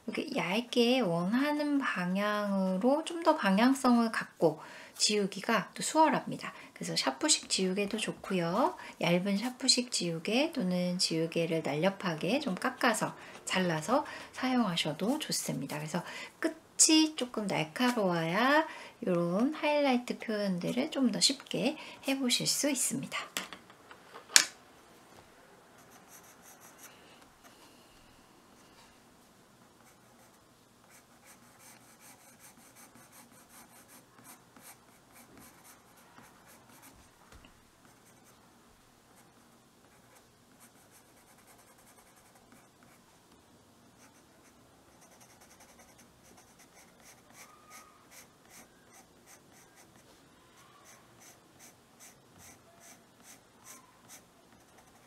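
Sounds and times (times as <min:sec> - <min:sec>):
pencil scratching on paper: 0:29.8 - 0:37.0, 0:44.0 - 0:55.0.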